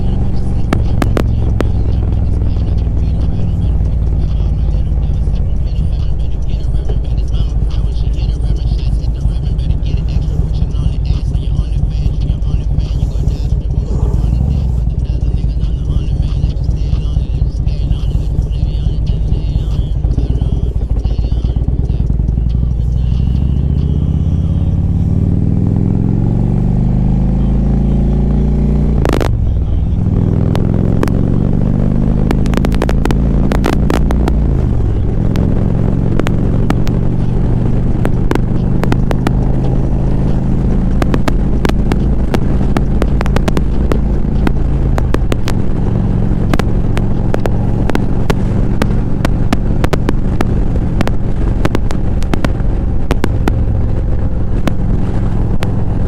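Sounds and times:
sharp ticks on microphone: 0.0s - 27.2s, 28.9s - 56.0s
motorcycle engine shifting gears: 0.0s - 56.0s.

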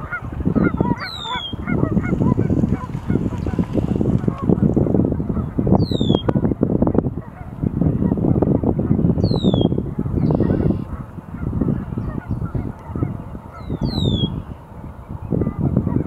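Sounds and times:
waterfowl chorus calling: 0.0s - 6.2s, 9.4s - 14.6s.

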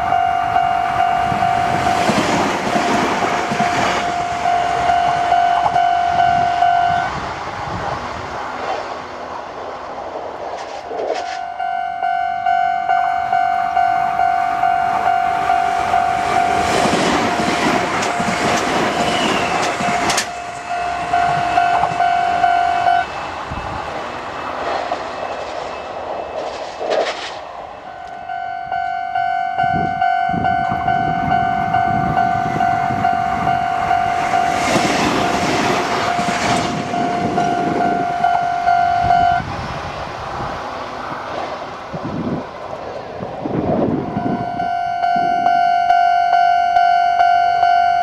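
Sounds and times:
level crossing warning bell: 0.0s - 7.2s, 11.2s - 23.8s, 27.8s - 39.5s, 44.0s - 48.0s
electric trains passing: 0.0s - 48.0s.

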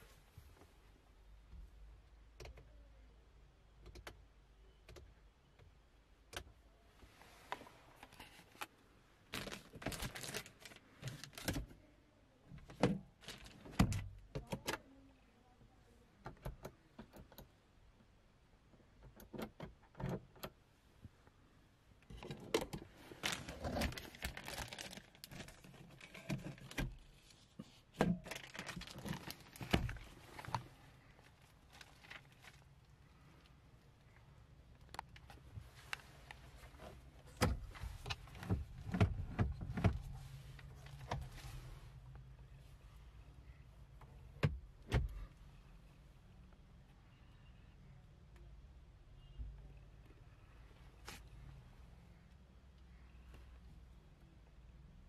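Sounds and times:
plastic car interior clicks and rattles: 9.3s - 11.8s, 12.6s - 14.8s, 19.0s - 20.6s, 22.0s - 27.1s, 27.9s - 30.7s, 37.3s - 41.3s.

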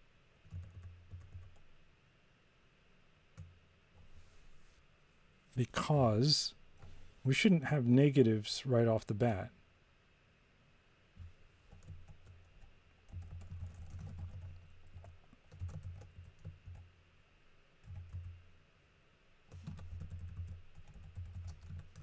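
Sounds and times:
typing on computer keyboard: 0.4s - 1.7s, 11.7s - 16.8s, 17.8s - 18.4s, 19.5s - 22.0s.

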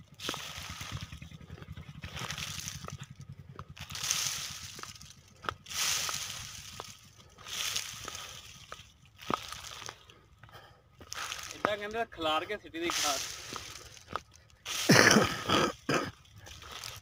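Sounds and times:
footsteps squelching in wet ground: 0.1s - 3.1s, 3.8s - 12.0s, 12.8s - 17.0s
granules spraying onto soil: 0.2s - 1.2s, 2.0s - 3.0s, 3.7s - 10.0s, 11.1s - 11.9s, 12.8s - 17.0s.

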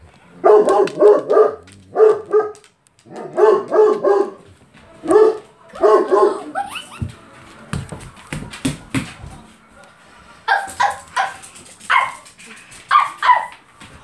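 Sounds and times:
dog barking: 0.4s - 6.5s, 10.5s - 12.2s, 12.9s - 13.6s.

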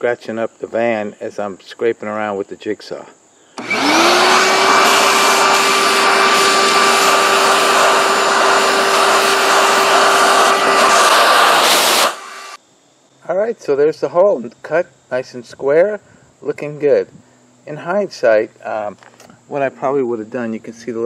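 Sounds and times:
vacuum cleaner motor whine: 3.6s - 12.6s
vacuum sucking up metal shavings: 3.6s - 12.6s.

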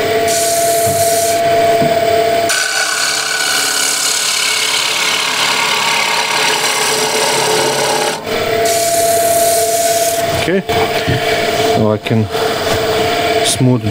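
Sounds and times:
lathe tool cutting wood: 2.5s - 10.3s.

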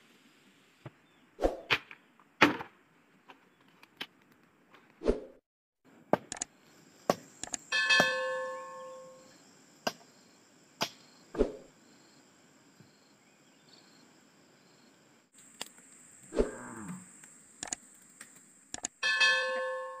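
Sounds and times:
high insect drone: 6.5s - 19.0s
ringing metallic clang: 7.7s - 9.2s, 19.0s - 20.0s.

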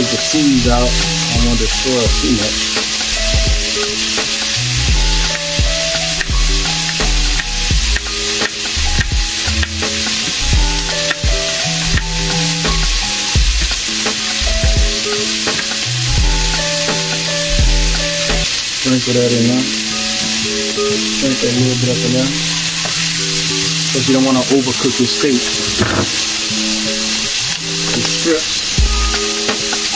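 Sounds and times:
music with heavy bass line: 0.0s - 18.6s, 25.2s - 29.9s
steak sizzling in a frying pan: 0.0s - 29.9s.

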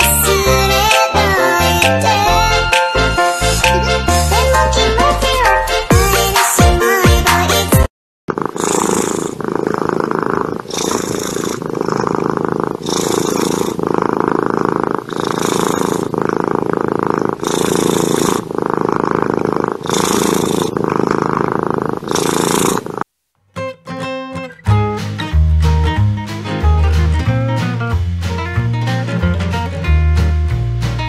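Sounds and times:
cat purring: 0.0s - 2.5s, 8.3s - 23.1s
cat breathing with soft hiss: 8.4s - 23.0s.

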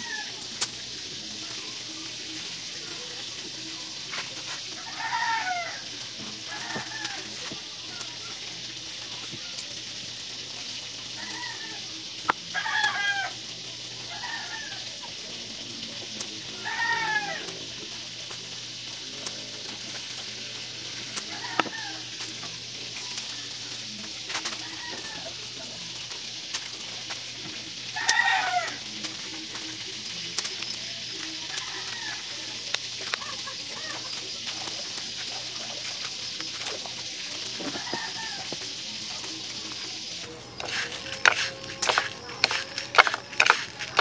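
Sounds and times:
faint chicken calls: 0.0s - 0.5s, 4.7s - 8.2s, 16.5s - 17.5s, 21.2s - 22.2s, 24.4s - 25.4s, 27.9s - 28.9s, 31.4s - 34.3s, 37.6s - 38.6s
rooster crowing: 0.0s - 0.5s, 4.8s - 5.9s, 6.5s - 7.5s, 11.2s - 11.8s, 12.5s - 13.4s, 14.1s - 14.9s, 16.6s - 17.5s, 21.3s - 22.1s, 24.6s - 25.3s, 28.0s - 28.8s, 31.5s - 32.6s, 37.7s - 38.6s, 40.6s - 44.0s
faint background music: 0.0s - 44.0s
outdoor hiss: 0.0s - 44.0s
chickens calling: 40.2s - 44.0s.

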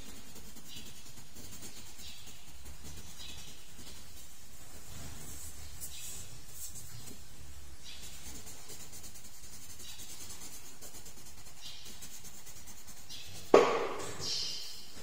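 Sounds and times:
pencil scratching on paper: 0.0s - 14.6s
loud thump: 13.5s - 14.2s.

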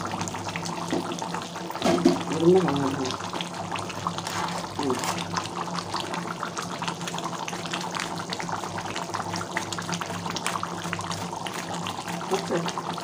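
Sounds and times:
curry bubbling and popping: 0.0s - 13.0s.

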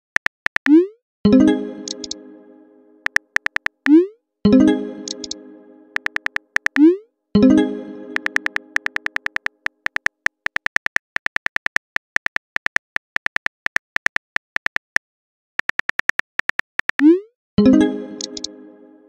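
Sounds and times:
phone keyboard typing clicks: 0.0s - 0.8s, 1.8s - 2.2s, 3.0s - 4.0s, 5.0s - 5.4s, 6.0s - 6.9s, 8.2s - 15.0s, 15.6s - 17.1s, 18.2s - 18.5s.

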